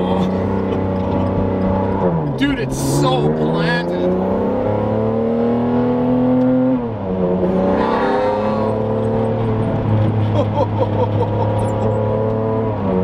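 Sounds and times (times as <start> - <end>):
sports car engine from cabin: 0.0 - 13.0.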